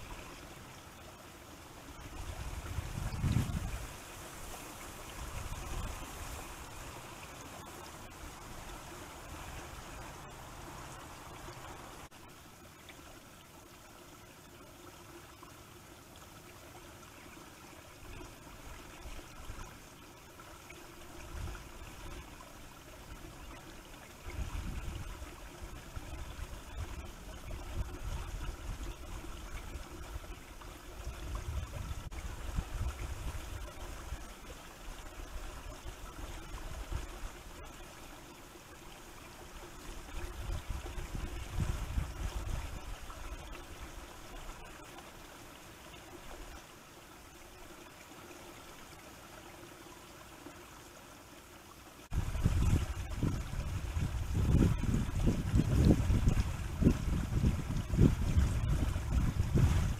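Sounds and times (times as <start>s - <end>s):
faint hiss: 0.0s - 53.2s
wind buffeting microphone: 2.0s - 4.1s, 24.3s - 25.2s, 31.0s - 33.7s, 40.2s - 43.2s, 52.1s - 59.9s.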